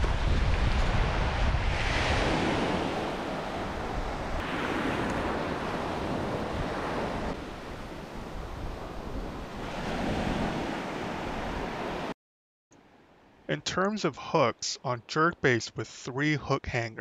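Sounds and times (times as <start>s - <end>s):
wind rumbling on microphone: 0.0s - 12.1s
ocean surf washing up beach: 0.0s - 12.2s.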